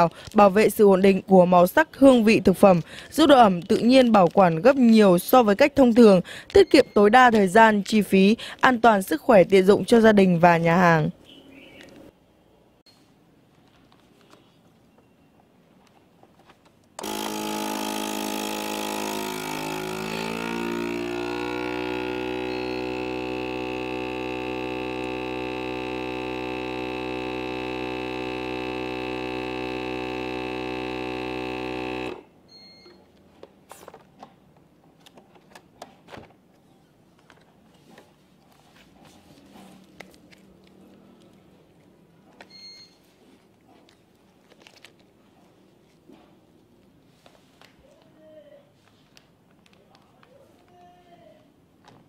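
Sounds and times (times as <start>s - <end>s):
vacuum pump motor humming: 17.0s - 32.3s.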